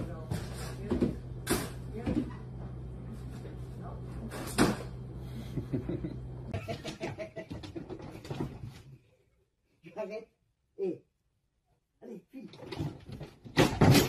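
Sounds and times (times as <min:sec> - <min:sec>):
steady low hum: 0:00.0 - 0:07.5.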